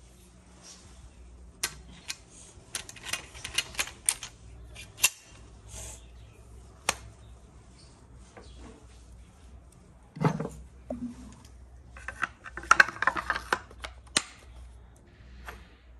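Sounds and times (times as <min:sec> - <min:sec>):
metal gun parts clicking: 0:01.6 - 0:05.4.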